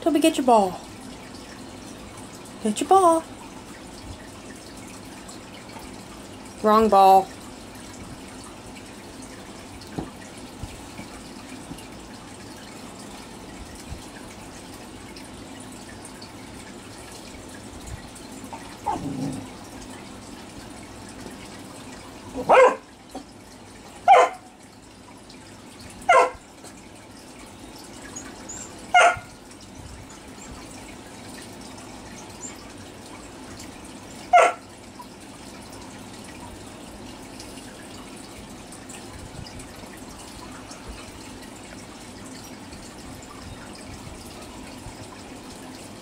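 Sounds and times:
water trickling: 0:00.0 - 0:46.0
dog barking: 0:22.4 - 0:22.9, 0:24.1 - 0:24.5, 0:26.1 - 0:26.4, 0:28.9 - 0:29.3, 0:34.3 - 0:34.6.

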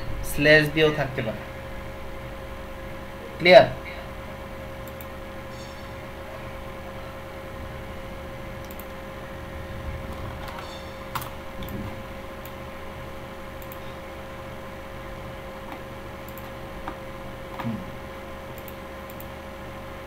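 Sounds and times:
steady hum and hiss: 0:00.0 - 0:20.0
computer mouse and keyboard clicks: 0:04.8 - 0:05.1, 0:08.6 - 0:09.0, 0:10.1 - 0:12.6, 0:13.6 - 0:14.0, 0:15.7 - 0:17.8, 0:18.5 - 0:19.3.

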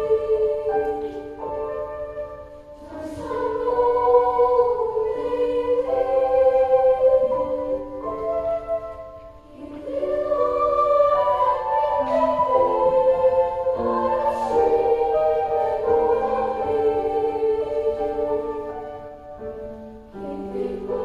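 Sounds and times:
children's choir singing: 0:00.0 - 0:21.0.

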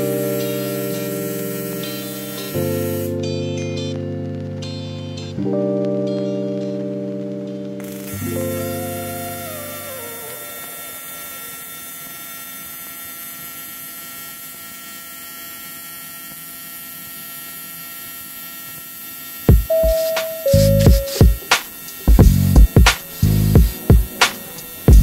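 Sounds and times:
electrical hum: 0:07.8 - 0:13.1, 0:19.5 - 0:25.0
loud held tone: 0:19.6 - 0:24.9
chime: 0:19.7 - 0:21.4.

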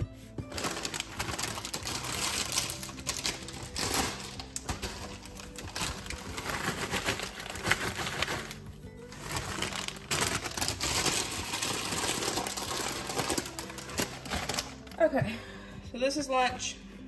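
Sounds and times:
background music: 0:00.0 - 0:17.0
plastic chip bag crinkling: 0:00.5 - 0:15.0.

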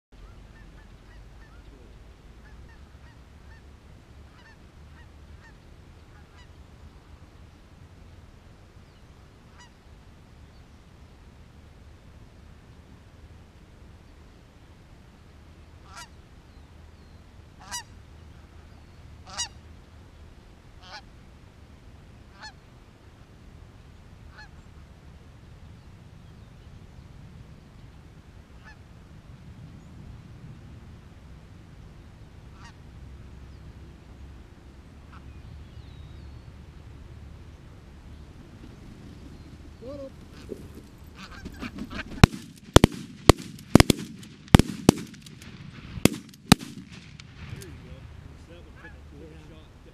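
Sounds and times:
low wind rumble: 0:00.1 - 0:49.9
goose honks: 0:04.3 - 0:06.5, 0:15.8 - 0:16.2, 0:17.6 - 0:17.9, 0:19.2 - 0:19.6, 0:20.8 - 0:21.0, 0:32.5 - 0:32.8, 0:41.2 - 0:42.3
shotgun blasts: 0:42.1 - 0:47.9.

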